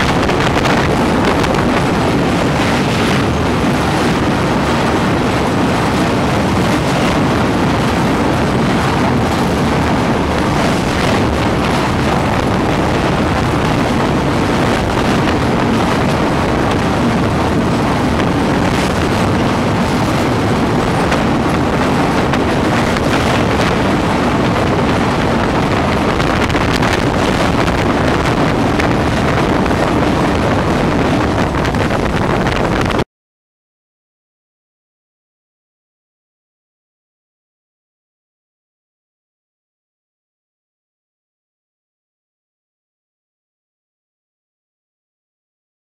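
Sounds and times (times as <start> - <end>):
train rumbling over bridge: 0.0 - 32.3.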